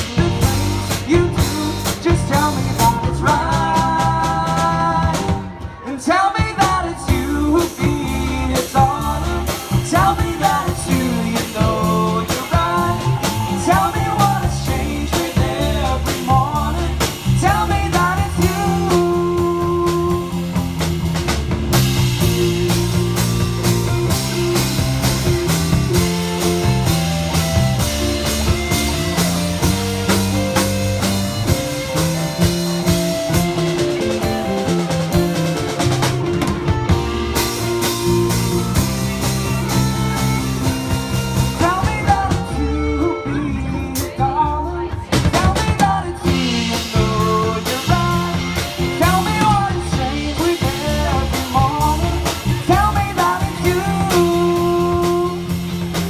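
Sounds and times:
singer's vocals: 0.0 - 20.8, 21.8 - 24.1, 41.4 - 56.0
bass guitar: 0.0 - 56.0
drum kit: 0.0 - 56.0
electric guitars: 0.0 - 56.0.

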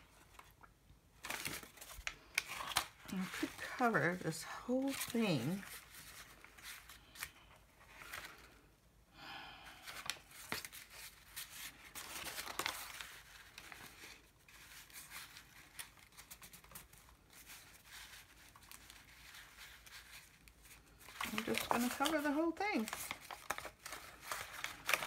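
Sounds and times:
paper rustling and crinkling: 1.2 - 8.6, 9.8 - 25.0.

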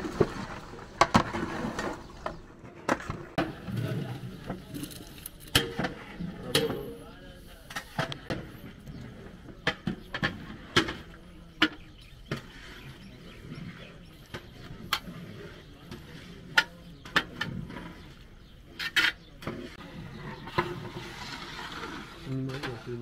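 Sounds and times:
pots and utensils clattering: 1.0 - 7.0
low background murmur: 3.3 - 23.0.

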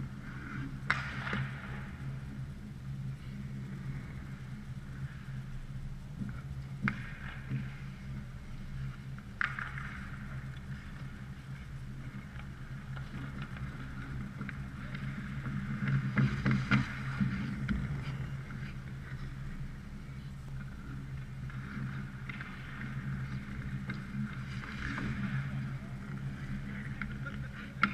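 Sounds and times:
arena hum: 0.0 - 27.9
skates scraping on ice: 6.3 - 27.9.

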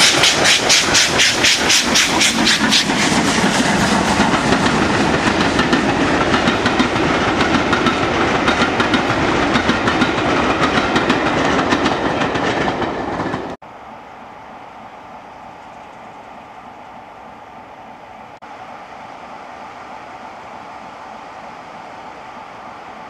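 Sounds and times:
train wheels clattering over rail joints: 0.0 - 13.6.

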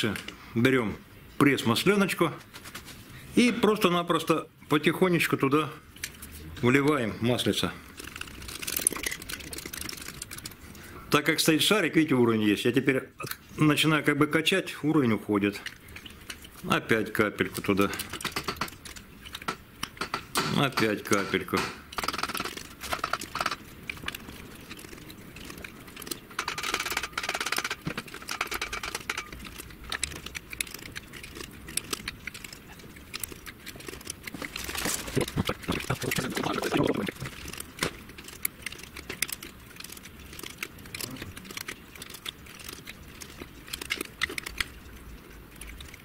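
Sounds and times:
handling noise: 18.0 - 45.2.

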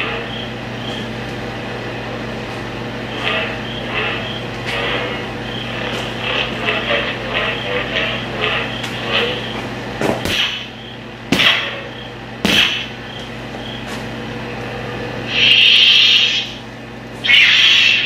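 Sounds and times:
lightsaber low hum: 0.0 - 13.8, 14.8 - 18.0
lightsaber swing and clash effects: 10.2 - 10.7, 12.5 - 12.9
lightsaber hissing bursts: 15.3 - 16.6, 17.2 - 18.0.

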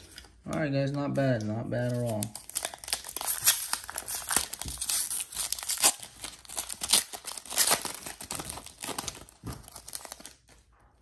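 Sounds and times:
foil wrapper crinkling: 1.8 - 10.6.

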